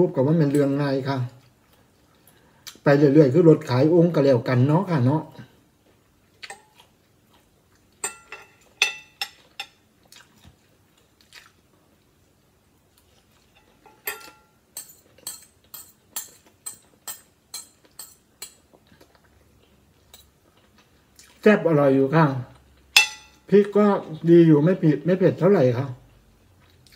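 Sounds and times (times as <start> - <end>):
chewing: 5.8 - 8.0, 8.6 - 13.9, 14.8 - 21.4, 26.4 - 26.9
cutlery clinking on glass plate: 8.0 - 9.8, 13.5 - 18.6, 23.0 - 23.4.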